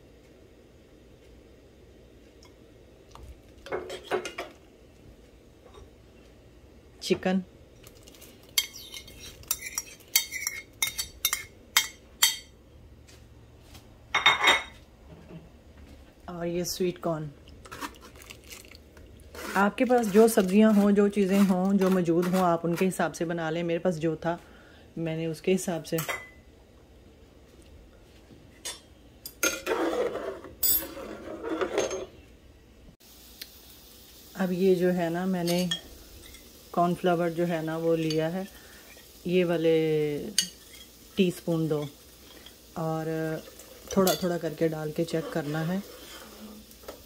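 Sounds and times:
metal spatula scraping a pot: 8.6s - 11.5s, 19.3s - 22.8s, 29.4s - 32.2s, 45.0s - 46.7s
spoon clinking against bowl: 8.6s - 12.5s.

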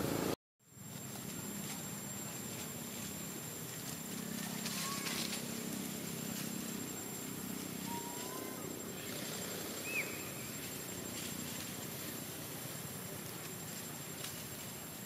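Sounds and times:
steady outdoor hiss: 0.0s - 15.0s
faint high steady tone: 6.3s - 9.1s
rising whistled call: 7.8s - 9.1s, 9.8s - 10.6s.

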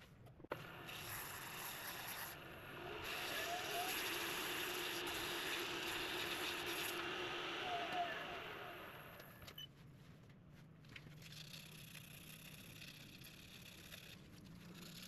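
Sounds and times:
lathe motor hum: 0.6s - 9.3s.

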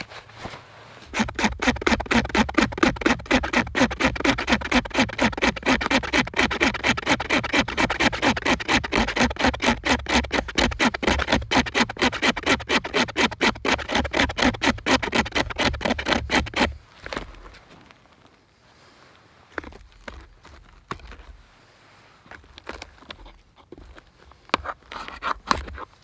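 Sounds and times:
knife scraping bark: 1.0s - 17.2s, 22.6s - 26.0s.

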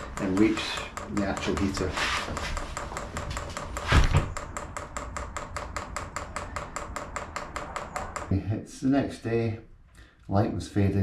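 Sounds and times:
fuel pump ticking rapidly: 0.0s - 8.3s.

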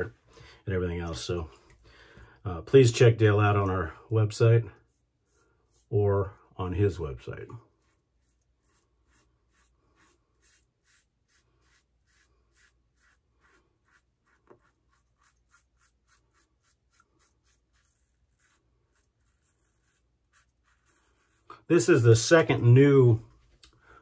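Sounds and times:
razor scraping stubble: 6.9s - 22.5s.

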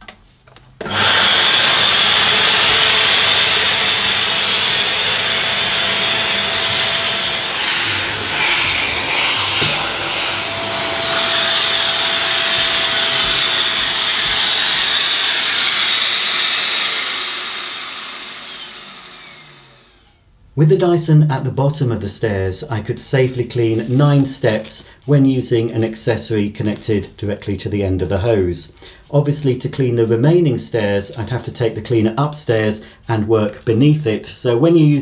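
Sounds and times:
vacuum cleaner suction whine: 0.8s - 20.3s.

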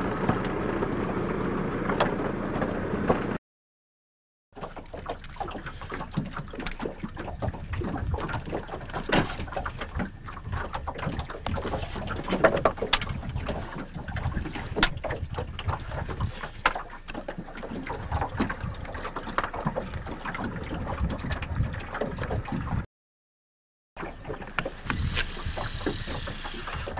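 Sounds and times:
water lapping against boat hull: 4.5s - 22.9s, 24.0s - 26.9s
wind on microphone: 7.3s - 8.6s, 13.0s - 16.5s, 17.9s - 19.0s, 20.0s - 22.8s, 24.8s - 26.9s.

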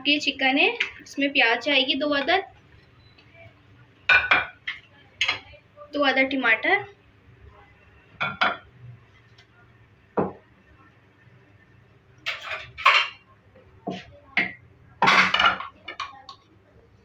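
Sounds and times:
dishes and utensils clattering: 12.2s - 13.3s, 13.9s - 16.3s.

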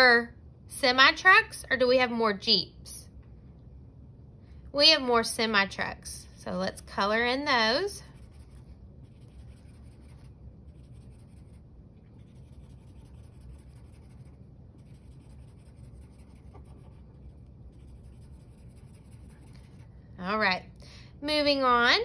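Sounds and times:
marker scribbling on paper: 6.6s - 11.6s, 12.2s - 19.9s.

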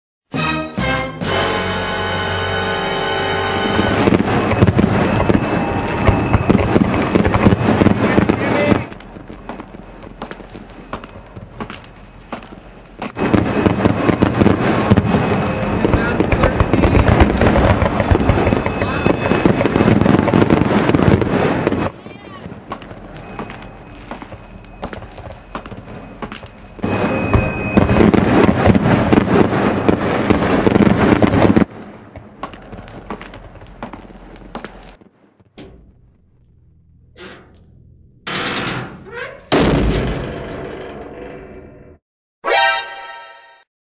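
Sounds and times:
crackling and popping: 4.0s - 14.4s, 22.7s - 29.5s, 30.3s - 39.2s
low rumble: 35.4s - 42.0s.

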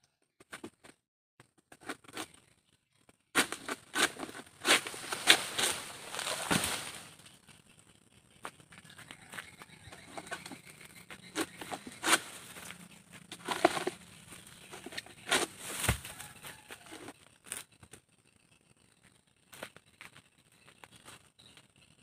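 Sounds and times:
pole knocking and scraping fronds: 3.4s - 7.3s, 8.8s - 17.7s.

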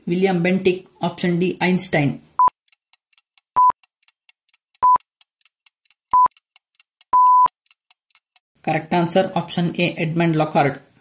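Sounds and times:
faint regular ticking: 2.4s - 8.5s
high electronic beeps: 7.2s - 7.5s
long electronic beep: 7.2s - 7.5s.

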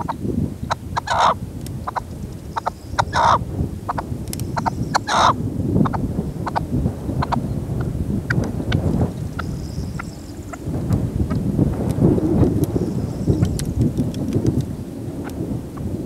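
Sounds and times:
wind rumble on microphone: 0.0s - 16.0s
partridge harsh calls: 1.0s - 2.0s, 2.6s - 4.0s, 4.6s - 6.6s.

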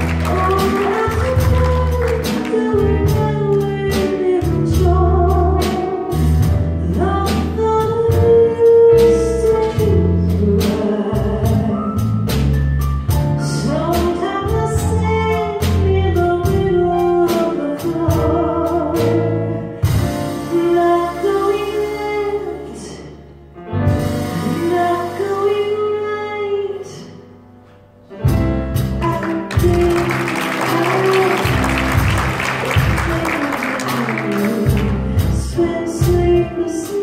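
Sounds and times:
live band music: 0.0s - 37.0s
person singing with vibrato: 29.1s - 37.0s.

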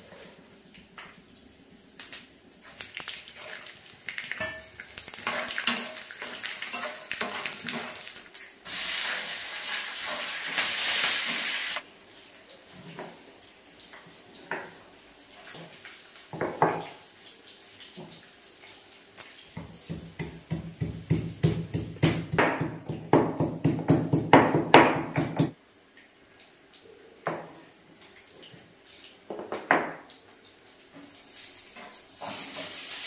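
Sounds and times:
stone pestle pounding in mortar: 19.9s - 25.5s.

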